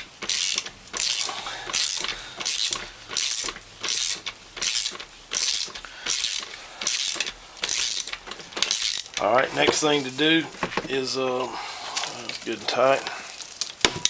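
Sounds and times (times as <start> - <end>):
ratchet pawl clicks: 0.2 - 9.3.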